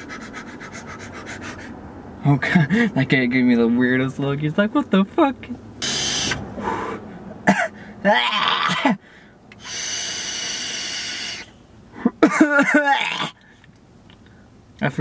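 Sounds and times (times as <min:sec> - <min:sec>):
man wheezing and coughing: 0:07.4 - 0:09.2, 0:12.0 - 0:13.4.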